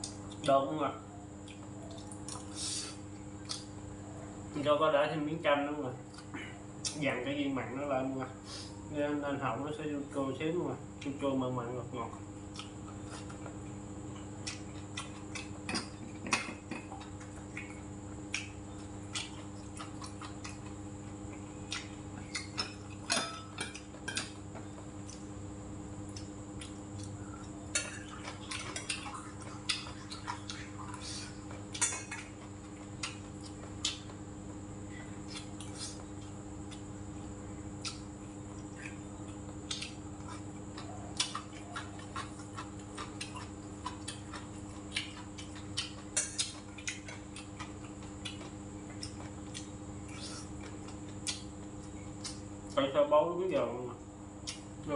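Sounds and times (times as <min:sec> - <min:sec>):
electric fan humming: 0:00.0 - 0:54.9
chopsticks and spoon clinking on bowls: 0:22.4 - 0:24.4.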